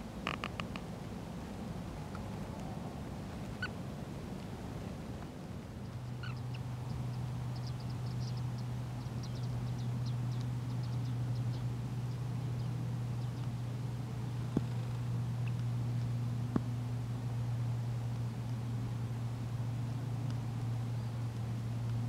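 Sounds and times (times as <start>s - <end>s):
steady low hum: 0.0s - 22.0s
birds calling: 5.8s - 15.7s
high thin chittering calls: 6.0s - 12.2s.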